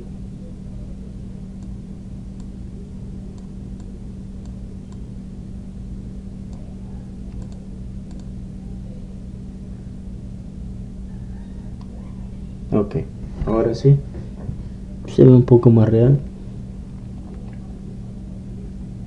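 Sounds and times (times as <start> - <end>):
low background hum: 0.0 - 19.0
computer mouse clicks: 7.3 - 8.3.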